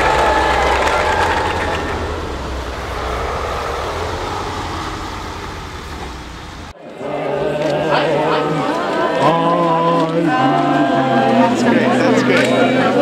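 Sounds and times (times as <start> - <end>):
diesel truck engine rumbling: 0.0 - 6.8
tyre hiss on wet road: 0.1 - 6.7.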